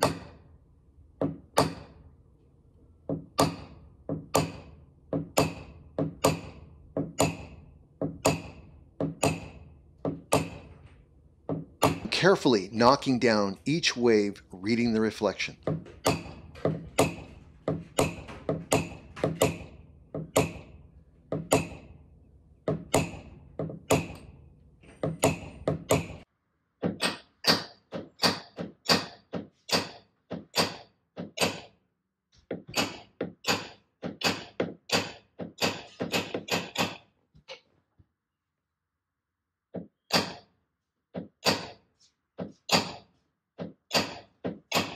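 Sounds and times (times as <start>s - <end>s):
hammer tapping on metal: 0.0s - 0.4s, 1.2s - 2.0s, 3.0s - 12.1s, 15.6s - 22.0s, 22.6s - 31.8s, 32.5s - 37.1s, 39.8s - 40.5s, 41.1s - 44.9s.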